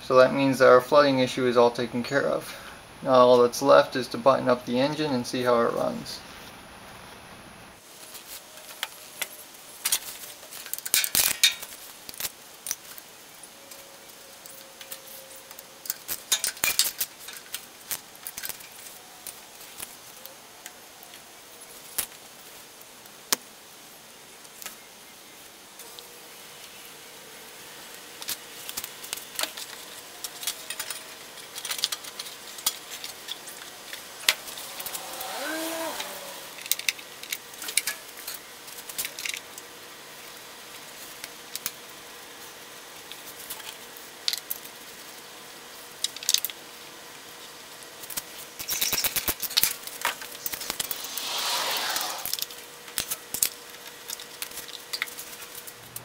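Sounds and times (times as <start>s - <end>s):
tools and plastic covers clicking: 28.2s - 34.4s.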